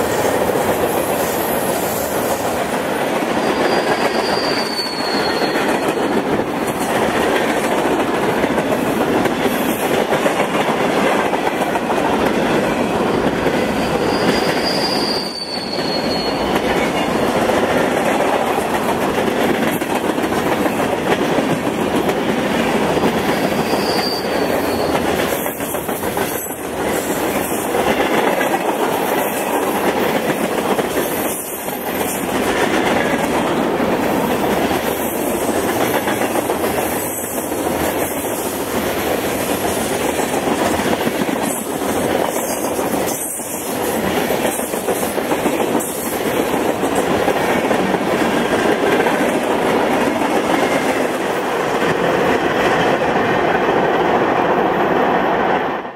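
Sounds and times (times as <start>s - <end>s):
steel wheels rolling on rail: 0.0s - 55.9s
faint wheel squeal: 3.4s - 5.7s, 14.0s - 16.6s, 23.6s - 25.0s.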